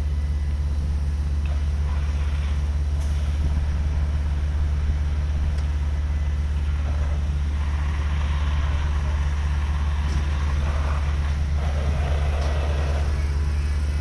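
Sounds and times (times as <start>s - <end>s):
large engine droning: 0.0s - 14.0s.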